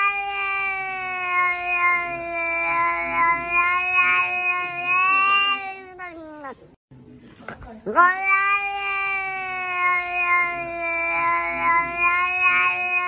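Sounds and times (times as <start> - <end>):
cat long meow: 0.0 - 6.6, 7.9 - 13.0.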